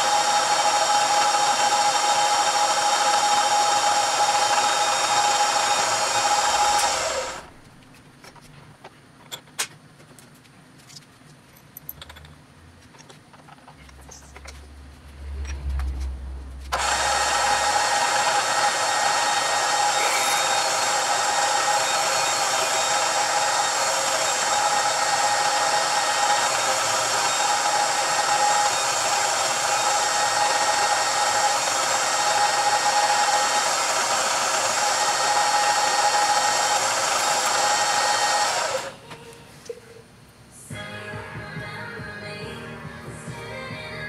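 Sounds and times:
milling machine drilling steel: 0.0s - 7.5s, 16.8s - 39.0s.

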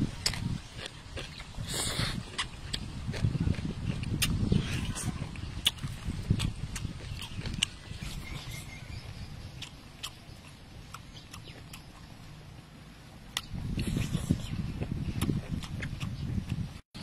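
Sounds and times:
person chewing with lip smacks: 0.2s - 8.6s, 9.6s - 12.1s, 13.3s - 16.6s.

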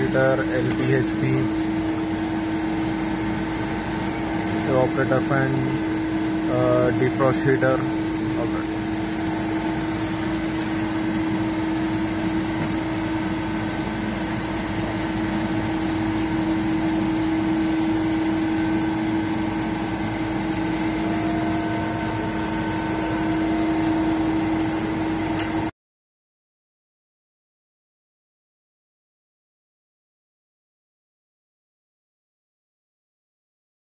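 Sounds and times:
refrigeration machinery humming: 0.0s - 25.7s.

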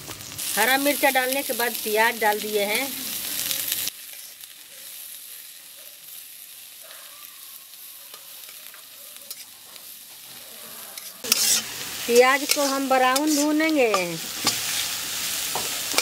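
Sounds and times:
onions sizzling in hot oil: 0.0s - 16.0s
metal spatula scraping pan: 10.8s - 16.0s.

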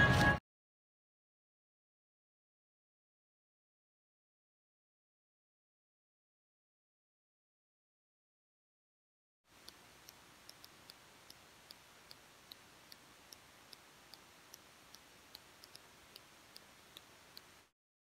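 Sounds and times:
faint hiss: 9.5s - 17.7s
light high ticks: 9.5s - 17.7s.

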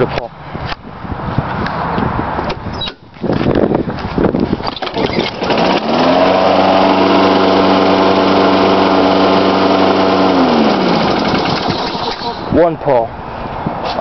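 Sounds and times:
lawn mower engine running: 4.6s - 12.6s.

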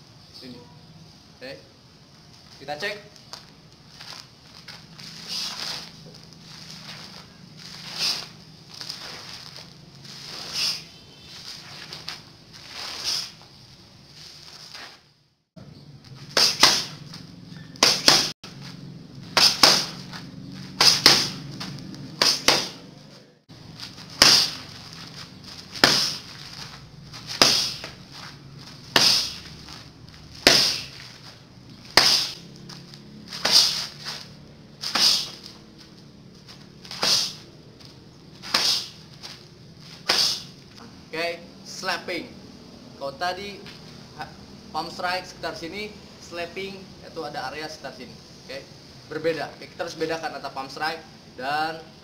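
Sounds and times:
palm strikes slapping focus mitt: 17.8s - 18.3s, 19.4s - 20.0s, 20.8s - 21.4s, 22.1s - 22.9s, 25.8s - 26.3s, 27.3s - 28.0s, 30.4s - 30.9s.

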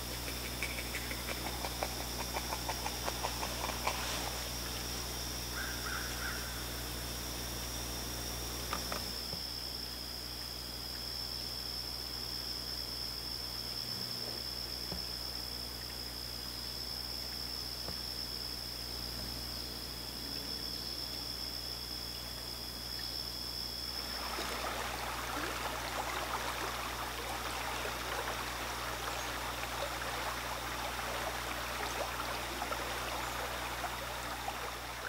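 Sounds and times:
river running over rocks: 24.0s - 35.0s.

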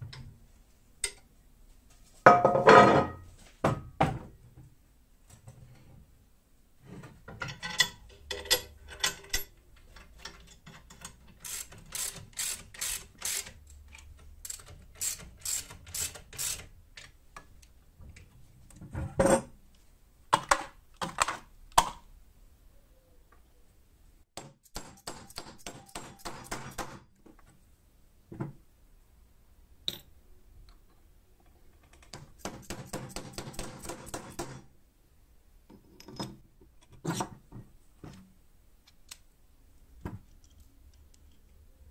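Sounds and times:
rapid ratchet-like clicking: 11.4s - 13.7s, 14.4s - 16.7s.

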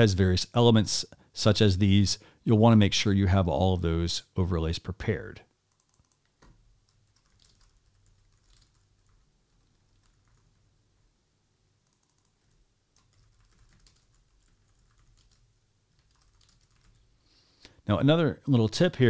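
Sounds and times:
faint keyboard typing: 5.7s - 10.8s, 11.8s - 17.2s.

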